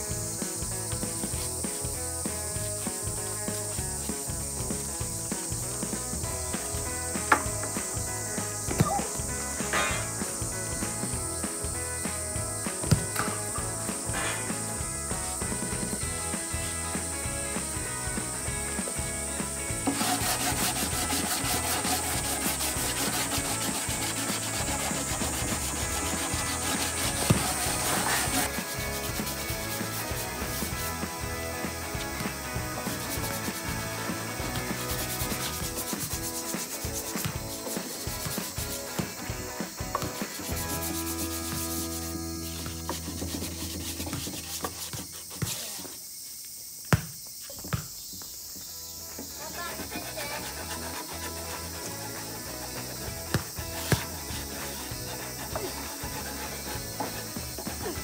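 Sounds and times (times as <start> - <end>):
background music: 0.0 - 44.9, 48.7 - 58.0
sandpaper rasping on wood: 19.7 - 31.0, 31.7 - 39.3, 40.0 - 46.0, 49.3 - 58.0.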